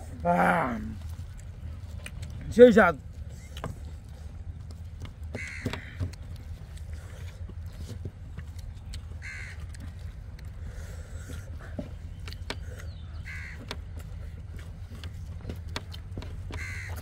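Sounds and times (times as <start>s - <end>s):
bird calling: 3.2s - 4.3s, 5.2s - 7.4s, 8.8s - 15.6s, 16.2s - 17.0s.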